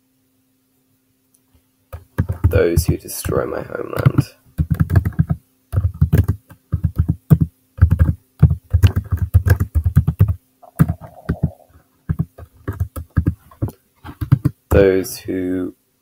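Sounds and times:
typing on keyboard: 2.0 - 2.9, 4.0 - 14.6.

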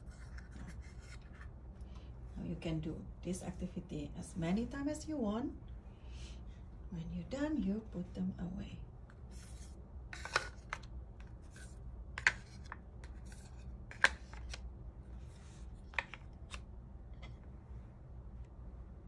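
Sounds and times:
cards sliding and rubbing: 0.0 - 1.5, 9.1 - 14.6, 15.2 - 16.6.

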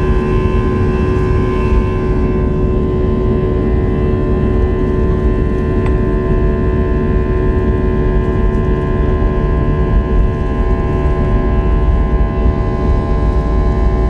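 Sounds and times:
jet engines whining: 0.0 - 6.8.

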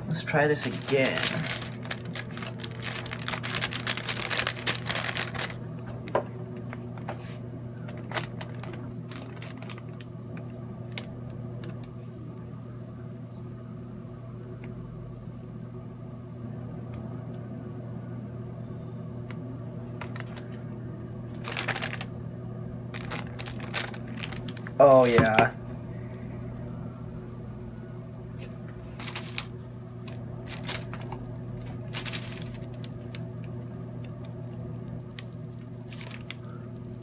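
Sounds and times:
low hum: 0.0 - 37.0
parchment paper crinkling: 0.4 - 6.1, 6.7 - 11.9, 20.0 - 20.6, 21.3 - 22.1, 22.9 - 25.4, 28.4 - 37.0.

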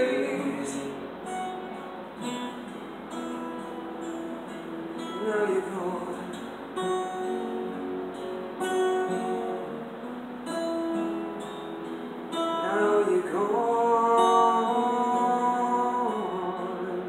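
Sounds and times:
person singing: 0.0 - 1.1, 5.0 - 7.6, 12.4 - 17.0
acoustic guitars strumming: 0.0 - 17.0.

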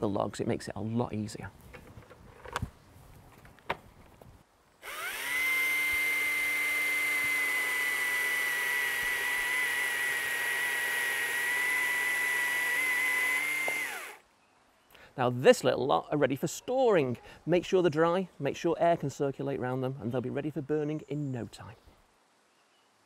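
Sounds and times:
cordless chainsaw whining: 4.8 - 14.2.

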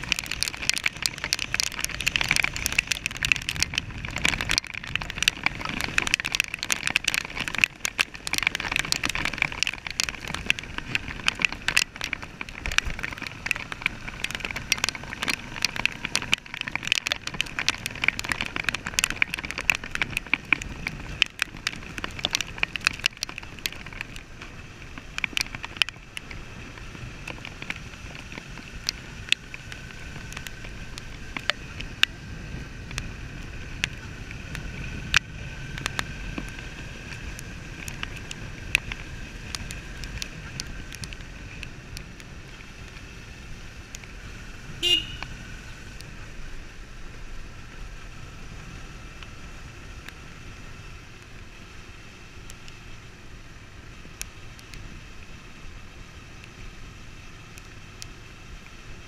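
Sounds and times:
sharp clicks: 0.0 - 32.2
motorcycle engine running: 0.0 - 59.0
road noise: 0.0 - 59.0
short horn beep: 44.8 - 45.3.

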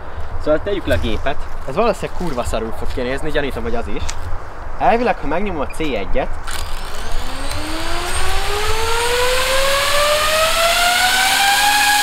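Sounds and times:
drone motors whining: 6.5 - 12.0.

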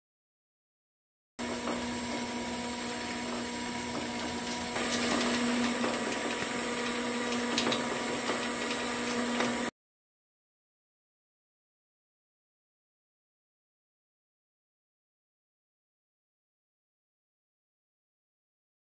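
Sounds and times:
steady machine hum: 1.4 - 9.7.

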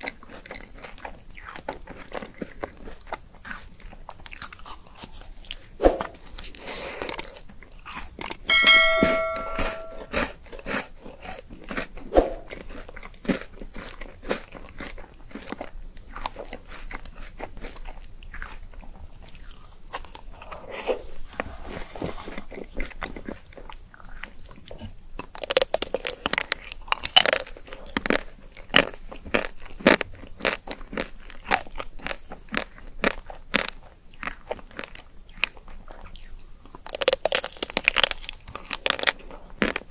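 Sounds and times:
crunching bites and chewing: 0.0 - 8.5, 10.1 - 39.9
short ringing tone: 8.5 - 10.1.

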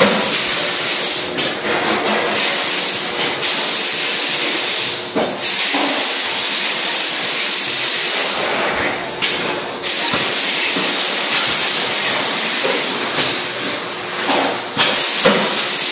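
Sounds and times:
loud steady hiss: 14.4 - 15.9.

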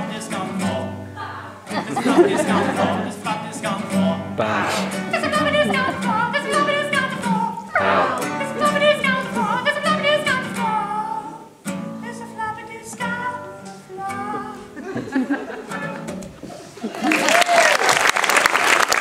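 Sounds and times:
man singing: 0.0 - 1.0, 1.7 - 11.4
classical guitar strumming: 0.0 - 16.4.

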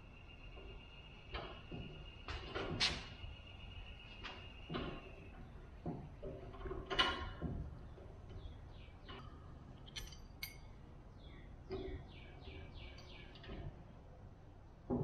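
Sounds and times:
parts clattering: 9.2 - 10.7
metal parts clinking and clicking: 9.8 - 10.8.

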